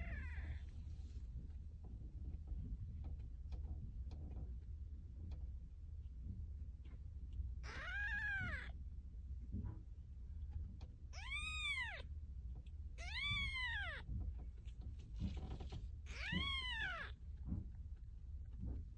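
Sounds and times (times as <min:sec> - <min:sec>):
kittens mewing: 0:07.6 - 0:08.8, 0:16.1 - 0:17.2.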